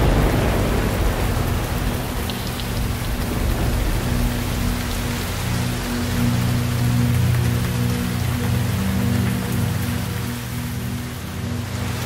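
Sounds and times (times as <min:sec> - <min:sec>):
low rumble: 0:00.0 - 0:08.4
steady rain falling: 0:00.0 - 0:12.0.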